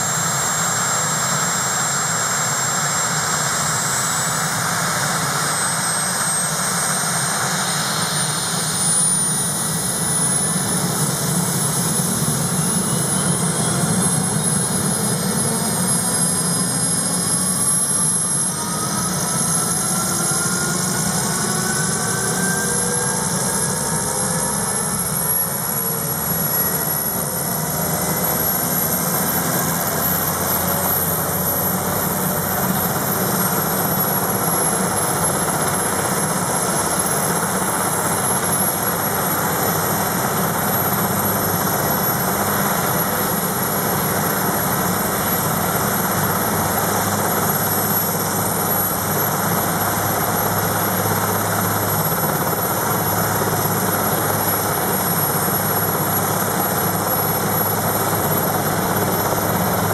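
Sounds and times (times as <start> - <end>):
helicopter running: 0.0 - 59.9
thin high whine: 0.0 - 59.9.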